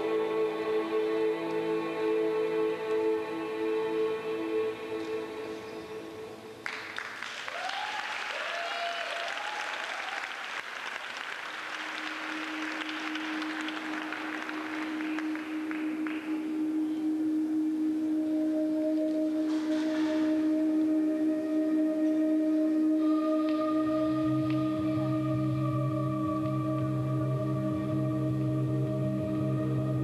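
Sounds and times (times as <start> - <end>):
low held musical tone: 0.0 - 6.7, 11.7 - 30.0
audience applauding: 6.6 - 16.6
held music tones: 11.7 - 30.0.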